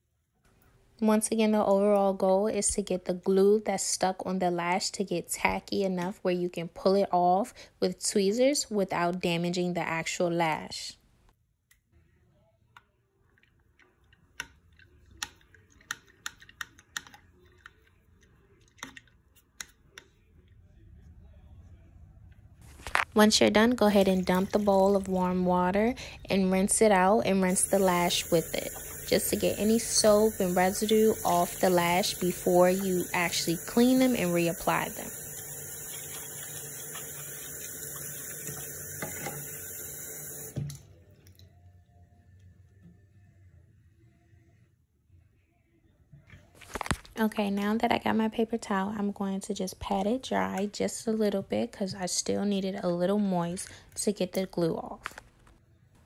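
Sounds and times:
tap water splashing into basin: 27.8 - 39.6.

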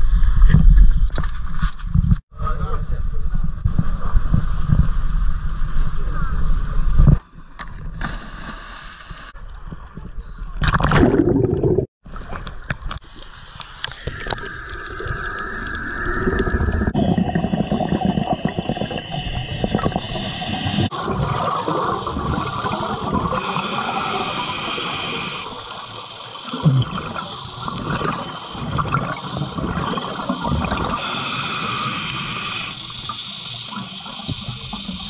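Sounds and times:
bubbling exhaled air: 10.6 - 12.0, 16.0 - 34.2
diver breathing through regulator: 20.0 - 20.9, 23.3 - 25.6, 30.9 - 32.9
hiss: 20.0 - 21.0, 23.3 - 26.2, 30.2 - 35.0.

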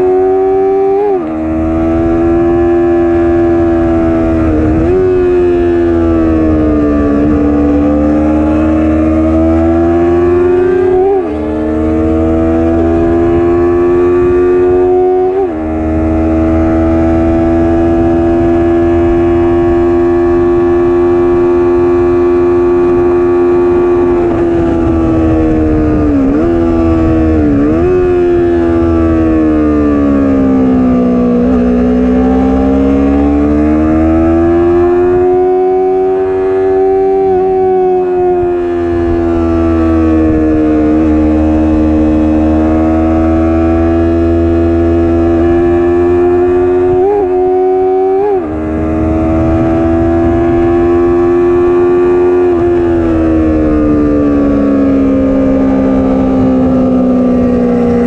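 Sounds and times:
motorcycle engine accelerating: 0.0 - 58.0
wind noise: 0.0 - 58.0.

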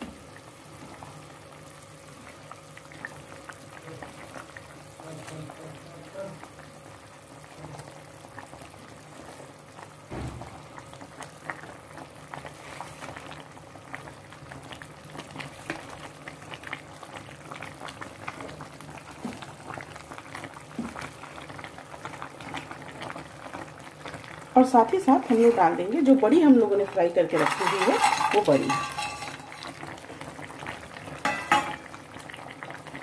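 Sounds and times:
curry bubbling in a pan: 0.0 - 33.0.

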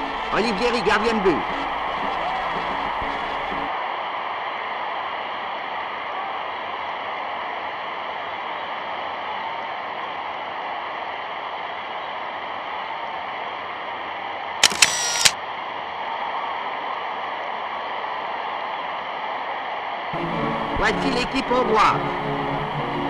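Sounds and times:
film soundtrack hiss and rumble: 0.0 - 11.9.

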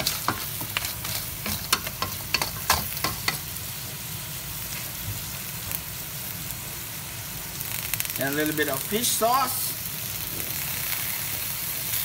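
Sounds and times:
wooden spoon scraping wok: 0.0 - 3.5
food sizzling in a wok: 0.0 - 12.0.

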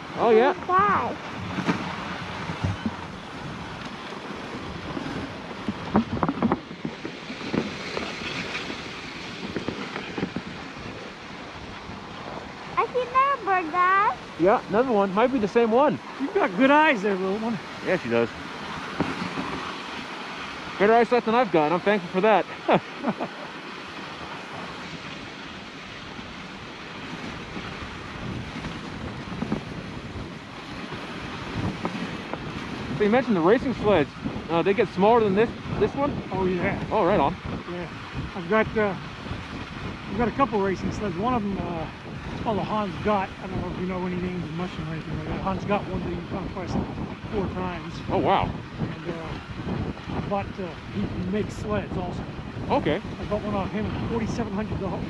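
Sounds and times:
sled gliding over snow: 0.0 - 55.0
wind on microphone: 0.0 - 55.0
short knocks or creaks: 1.4 - 3.2, 4.9 - 8.8.

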